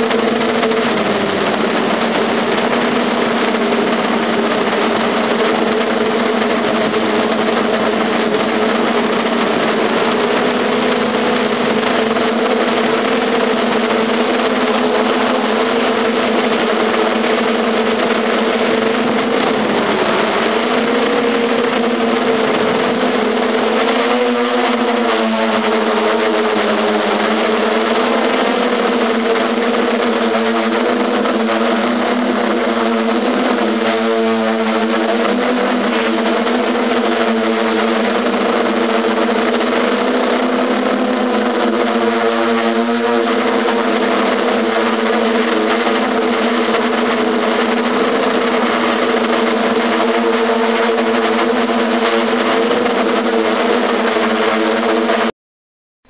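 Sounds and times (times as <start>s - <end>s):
drone propellers droning: 0.0s - 55.3s.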